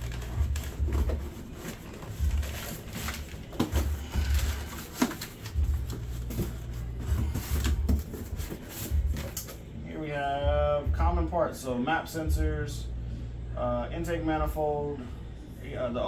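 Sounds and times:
cardboard scraping and rustling: 0.0s - 9.6s.

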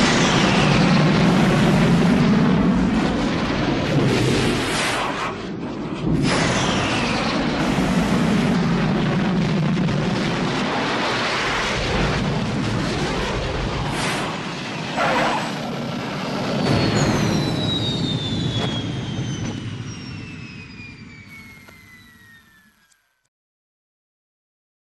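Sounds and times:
jet roar: 0.0s - 23.2s
high whine falling in pitch: 16.6s - 23.3s.

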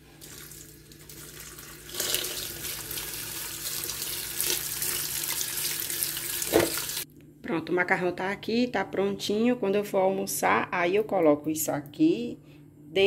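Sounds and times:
tap water pouring onto pasta: 0.0s - 7.0s.

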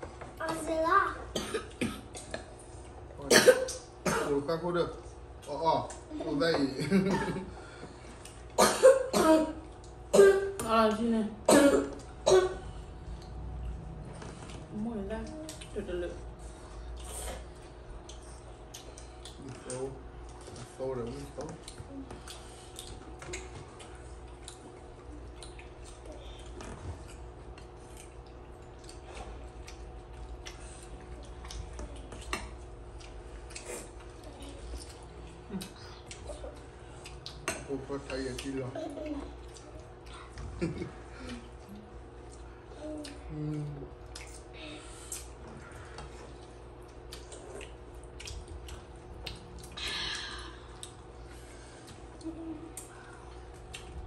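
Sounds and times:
steady low hum: 0.0s - 54.0s
chewing: 12.9s - 15.8s, 16.4s - 40.5s, 41.1s - 54.0s.

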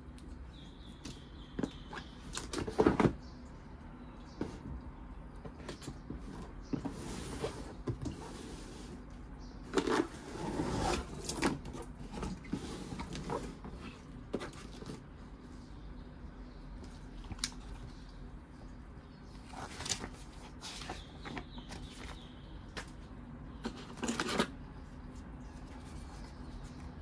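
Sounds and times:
cardboard scraping on cardboard: 6.2s - 9.0s, 9.7s - 15.1s.

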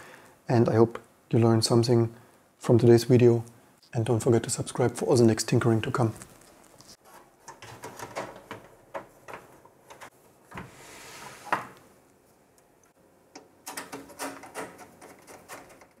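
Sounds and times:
metal cover sliding with scrape: 10.6s - 11.8s.

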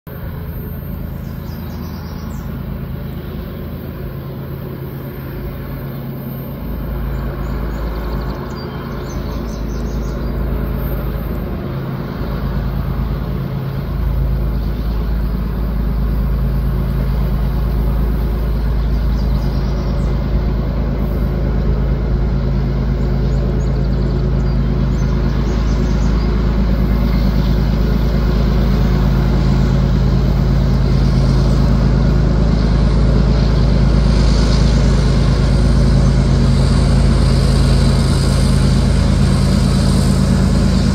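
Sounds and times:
diesel locomotive engines droning: 0.0s - 40.9s
birds chirping: 0.1s - 31.6s.

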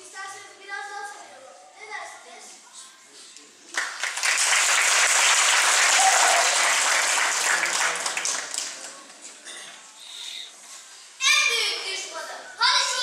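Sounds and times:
audience applauding: 3.7s - 9.2s.

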